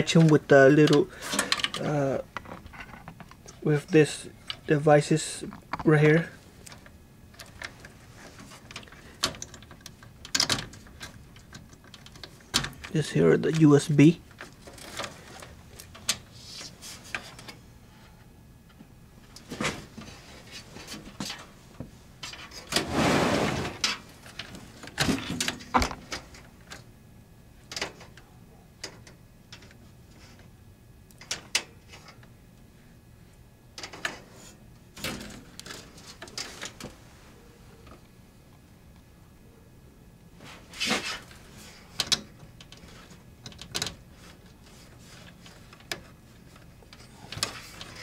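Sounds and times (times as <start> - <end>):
cables and connectors rattling: 0.0 - 16.3, 35.0 - 37.0, 40.8 - 48.0
scraping rustle: 22.2 - 25.2, 40.4 - 42.0.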